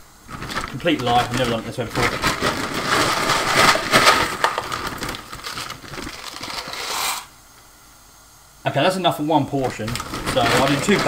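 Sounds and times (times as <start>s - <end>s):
dry pasta rattling: 0.3s - 7.3s, 9.6s - 11.0s
plastic bag crinkling: 0.3s - 7.3s, 9.6s - 11.0s.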